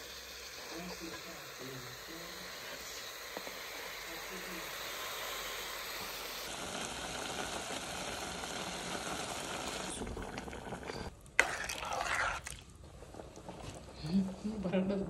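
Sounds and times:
vegetables sizzling in a pot: 0.0s - 14.6s
wet sauce sound: 6.4s - 14.0s.

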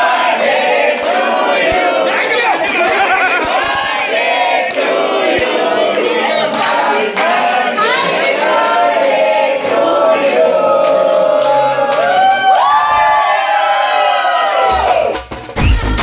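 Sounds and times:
crowd singing: 0.0s - 12.5s
people clapping: 0.0s - 13.3s.

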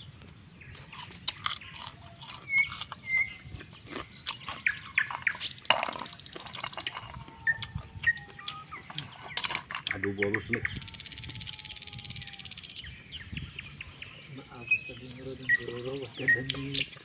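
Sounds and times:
small birds chirping: 0.0s - 17.0s
sharp clicks and crackles: 0.2s - 10.0s.

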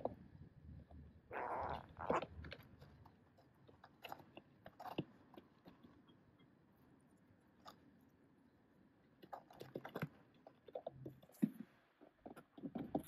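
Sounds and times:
beak taps and crunches: 2.2s - 6.1s, 9.2s - 13.0s.

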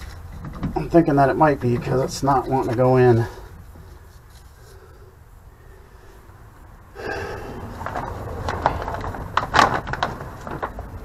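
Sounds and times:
sharp clicks and knocks: 0.0s - 2.8s
rustling and handling noises: 0.0s - 5.0s, 7.7s - 11.0s.

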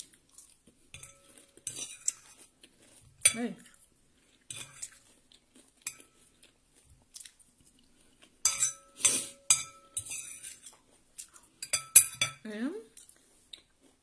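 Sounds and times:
spoon and knife scraping on plate: 0.9s - 2.5s, 8.4s - 10.8s.

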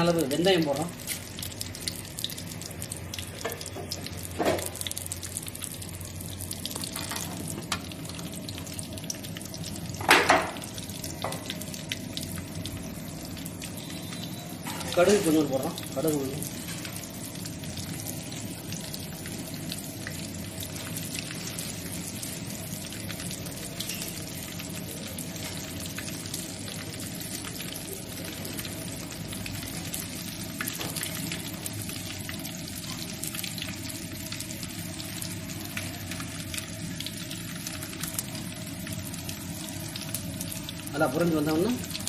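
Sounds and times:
seeds sizzling and popping in oil: 0.0s - 42.0s.

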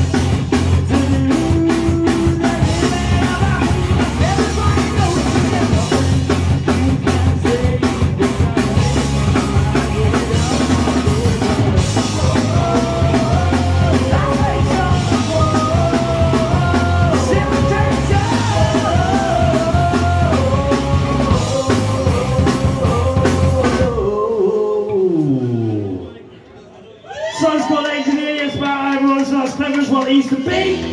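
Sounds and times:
melodic guitar lead line: 0.0s - 23.8s
punk rock band playing live: 0.0s - 24.2s, 29.8s - 30.9s.

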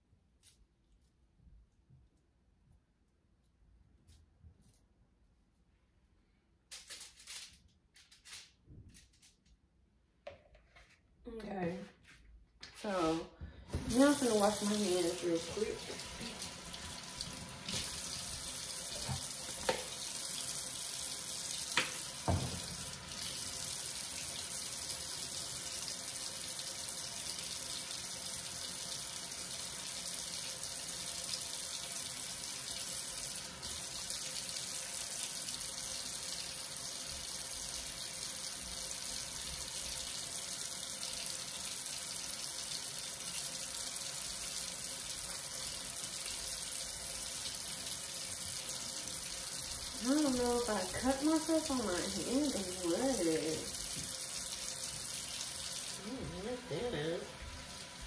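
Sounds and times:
tap water running: 12.6s - 58.0s.

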